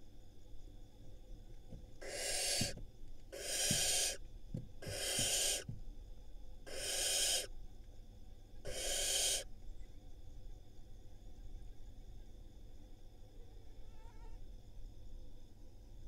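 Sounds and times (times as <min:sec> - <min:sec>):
owl chicks rasping hisses: 0:02.0 - 0:04.2, 0:04.8 - 0:05.7, 0:06.7 - 0:07.5, 0:08.7 - 0:09.5.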